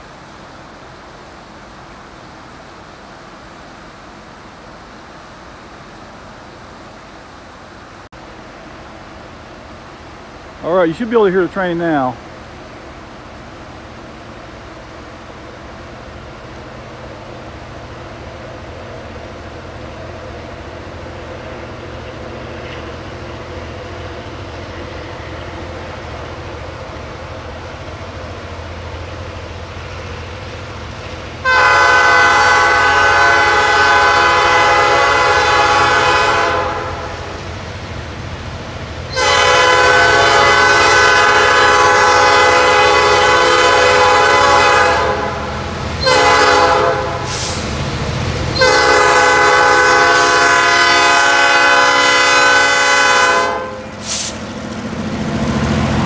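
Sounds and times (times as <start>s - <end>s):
diesel locomotive rumble: 0.0s - 56.0s
train horn blasts: 31.4s - 37.3s, 39.1s - 47.6s, 48.6s - 54.2s.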